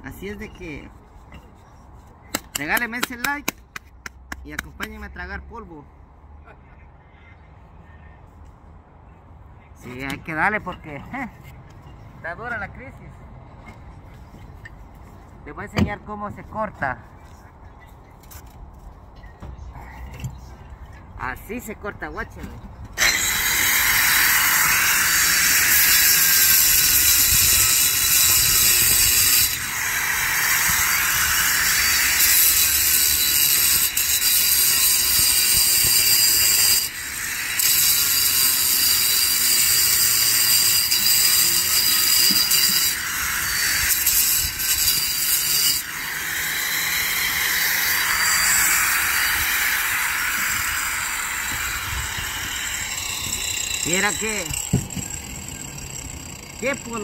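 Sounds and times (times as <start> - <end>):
angle grinder cutting masonry: 23.0 - 57.0.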